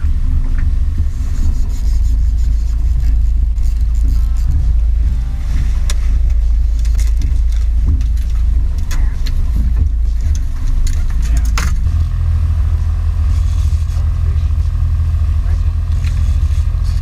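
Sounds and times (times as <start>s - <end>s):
outboard motor running: 0.0s - 17.0s
sharp knocks and clicks: 5.8s - 12.0s.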